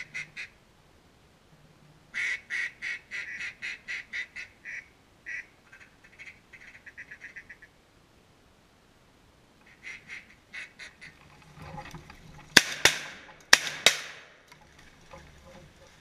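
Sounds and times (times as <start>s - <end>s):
duck call quacks: 0.0s - 0.5s, 2.2s - 7.7s, 9.6s - 11.2s
duck call chattering notes: 0.0s - 0.6s, 2.2s - 7.7s, 9.6s - 11.2s.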